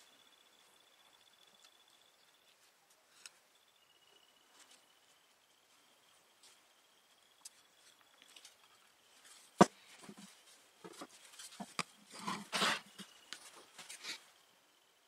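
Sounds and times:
work gloves rustling: 4.4 - 14.3.

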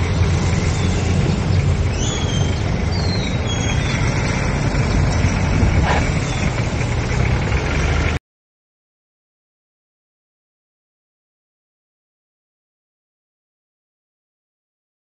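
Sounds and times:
wind rumble on microphone: 0.0 - 7.4
road and traffic noise: 0.0 - 8.2.

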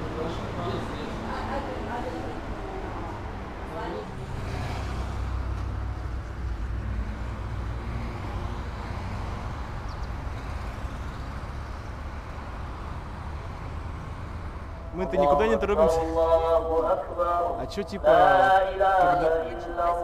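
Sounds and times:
road traffic hum: 0.0 - 20.0.

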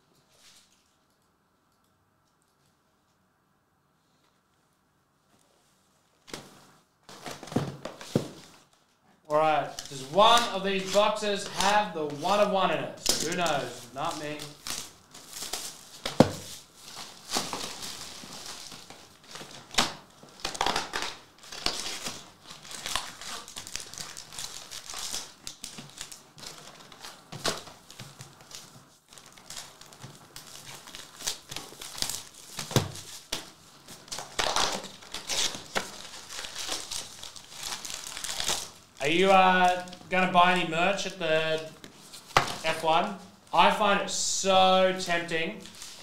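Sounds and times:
shrink wrap tearing and crumpling: 9.5 - 40.1
foil packs rustling: 9.5 - 43.8, 44.8 - 46.0.

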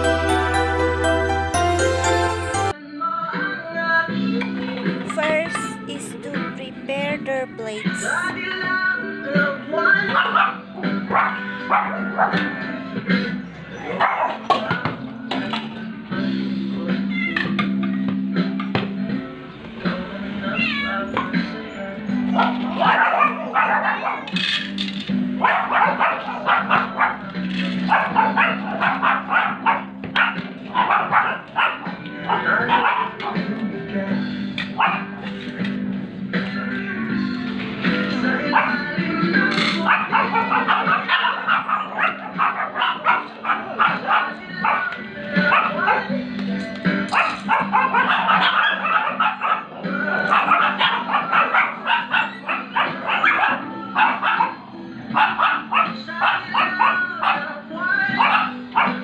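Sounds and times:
background music with low notes: 0.0 - 59.0
dogs barking: 10.0 - 12.8, 13.7 - 15.0, 22.2 - 33.6, 34.6 - 35.3, 38.1 - 46.3, 47.0 - 59.0.

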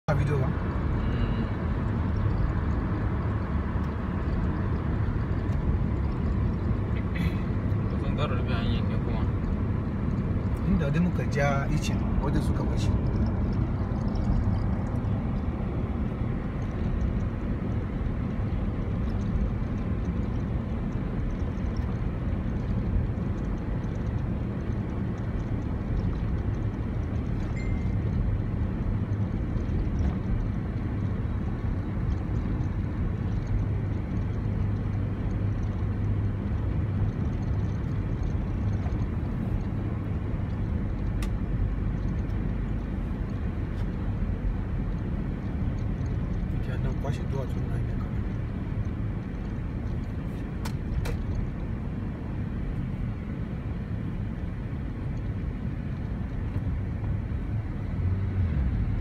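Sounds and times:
car engine and tyre rumble: 0.0 - 59.0.

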